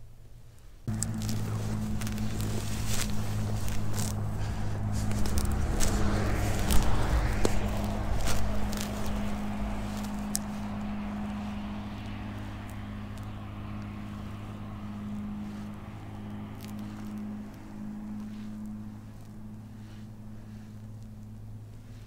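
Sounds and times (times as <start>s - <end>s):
low motor hum: 0.9s - 22.0s.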